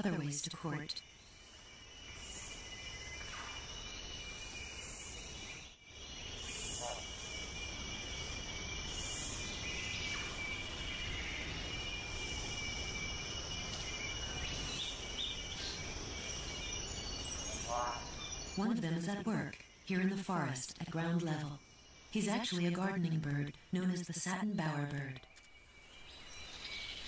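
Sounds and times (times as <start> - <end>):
insects trilling: 0.0 - 27.0
soft insect pulses: 0.1 - 25.6.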